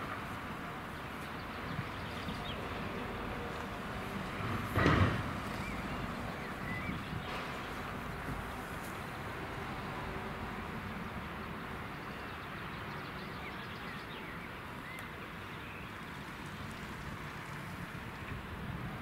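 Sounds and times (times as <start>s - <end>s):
steam locomotive rumbling: 2.3s - 10.8s.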